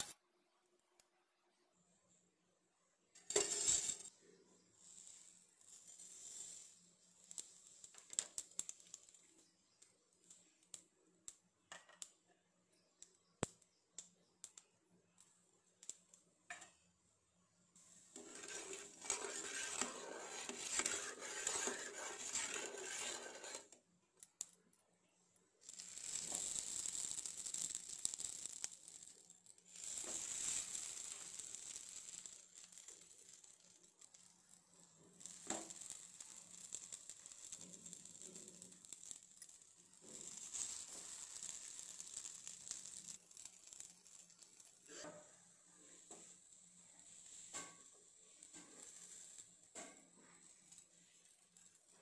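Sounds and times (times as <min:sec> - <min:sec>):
seeds popping in hot oil: 0:00.0 - 0:01.2, 0:03.1 - 0:52.0
oil sizzling: 0:03.2 - 0:12.2, 0:17.8 - 0:23.8, 0:25.6 - 0:52.0.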